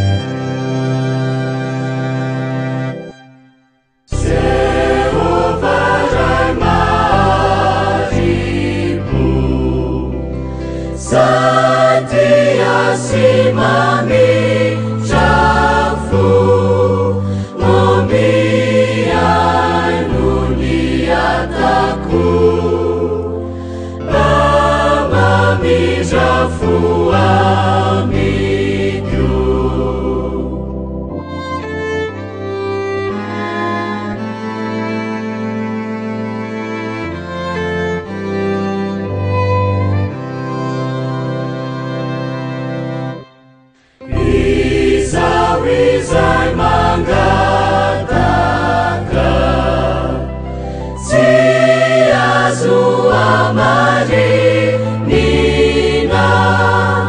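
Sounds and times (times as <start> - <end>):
mixed choir singing a hymn: 4.1 - 31.1, 44.0 - 57.0.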